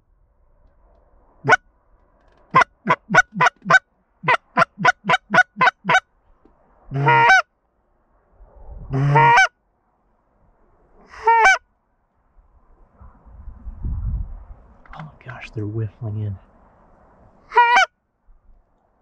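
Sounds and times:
goose call clucks: 0:02.5 - 0:06.0, 0:06.9 - 0:07.4, 0:08.9 - 0:09.5, 0:11.1 - 0:11.6, 0:17.5 - 0:17.9
goose call honks: 0:02.5 - 0:06.0, 0:06.9 - 0:07.4, 0:08.9 - 0:09.5, 0:11.1 - 0:11.6, 0:17.5 - 0:17.9.

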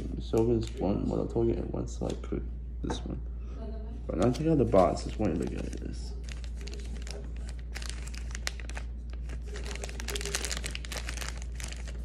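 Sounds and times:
plastic bag crinkling: 0:04.1 - 0:12.0.

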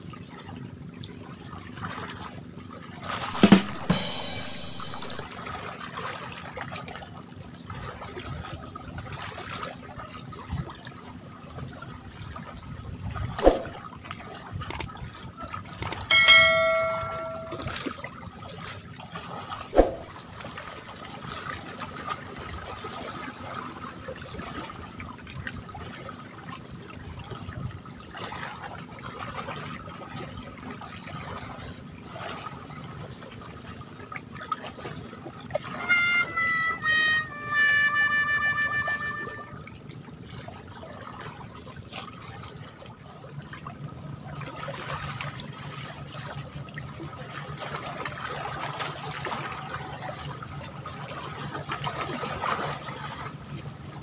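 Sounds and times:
choppy water washing: 0:00.0 - 0:04.3, 0:05.0 - 0:37.2, 0:38.0 - 0:54.0
bright chime: 0:03.6 - 0:05.2, 0:16.1 - 0:17.8, 0:35.8 - 0:39.5
sharp clicks: 0:15.8 - 0:16.1.

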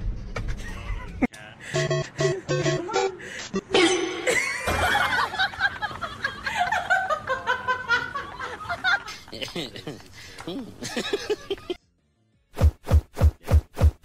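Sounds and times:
person laughing: 0:00.6 - 0:11.8.

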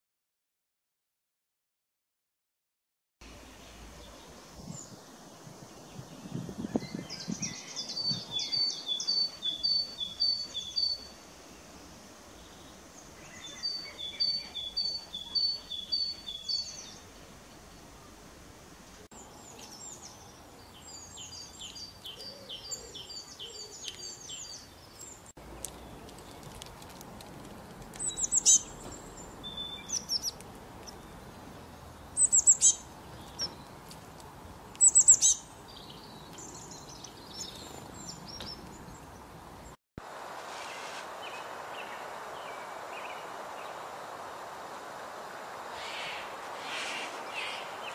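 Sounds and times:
faint steady hiss: 0:03.2 - 0:22.4, 0:38.7 - 0:47.9
songbirds singing: 0:03.2 - 0:26.8, 0:27.9 - 0:39.8, 0:40.7 - 0:44.4, 0:45.1 - 0:47.9
short loud high bird calls: 0:45.7 - 0:47.9.

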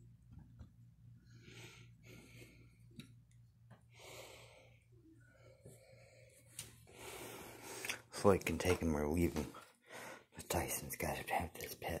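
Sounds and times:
faint breaths: 0:01.2 - 0:03.0, 0:03.8 - 0:08.1, 0:09.5 - 0:10.4.

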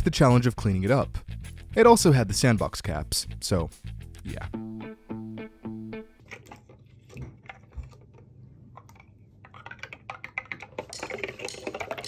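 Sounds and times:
clicks and knocks in liquid bath: 0:06.2 - 0:12.0.

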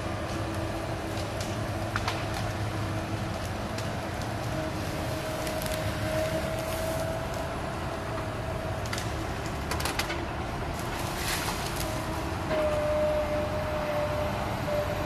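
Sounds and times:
excavator running with whine: 0:00.0 - 0:15.0
wood cracking and snapping: 0:00.5 - 0:07.4, 0:08.8 - 0:12.0.

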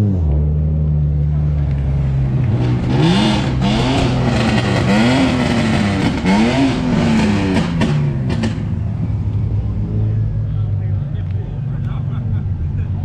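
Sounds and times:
sports car engine revving: 0:00.0 - 0:13.0.

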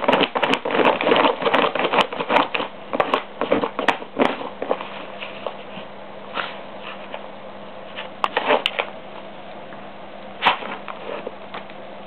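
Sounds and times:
dog sniffing: 0:00.0 - 0:07.2, 0:10.4 - 0:11.4.

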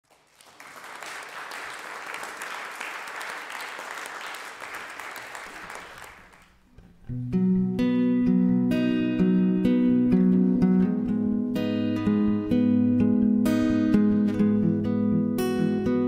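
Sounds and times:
audience applauding: 0:00.0 - 0:06.6
acoustic guitar chords: 0:06.7 - 0:16.0.

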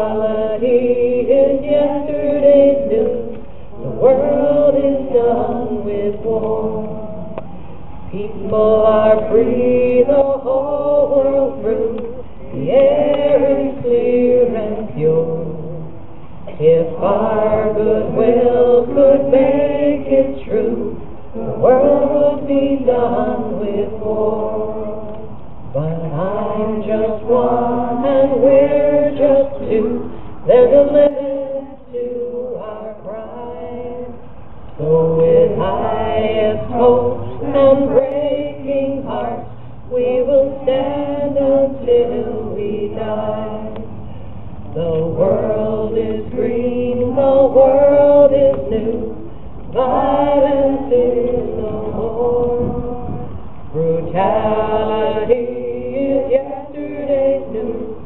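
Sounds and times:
group of people singing: 0:00.0 - 0:58.0.

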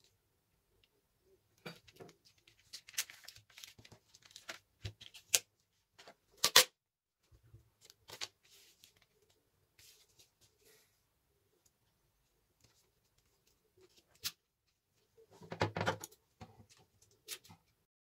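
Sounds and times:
paper rustling and crinkling: 0:01.7 - 0:05.4, 0:07.8 - 0:10.6
sharp paper crackles: 0:02.2 - 0:05.4.

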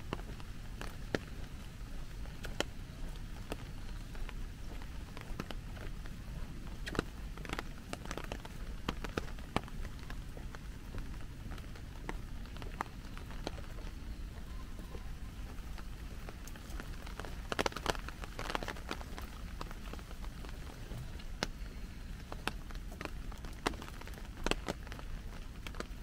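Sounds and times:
large raindrops tapping: 0:00.0 - 0:26.0
steady rain: 0:00.0 - 0:26.0.

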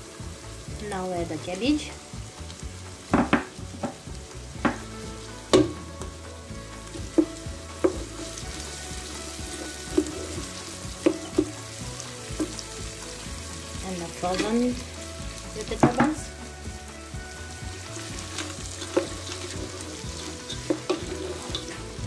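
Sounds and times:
vegetables sizzling in oil: 0:00.0 - 0:22.0
wooden spoon knocking on pan: 0:03.1 - 0:04.9, 0:05.5 - 0:06.2, 0:07.0 - 0:08.3, 0:09.9 - 0:11.6, 0:12.3 - 0:12.6, 0:15.8 - 0:16.3, 0:18.8 - 0:19.8.

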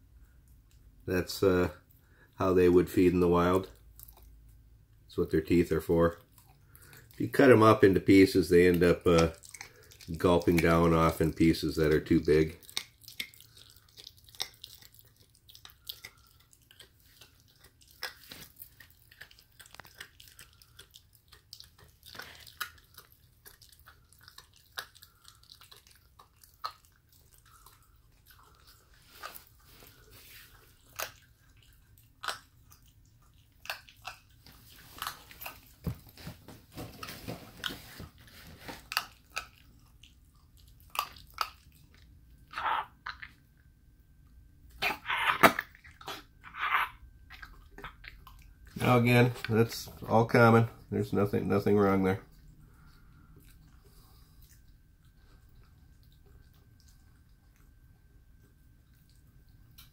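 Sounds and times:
puppy crunching a bone: 0:01.6 - 0:43.8, 0:44.7 - 0:59.9.

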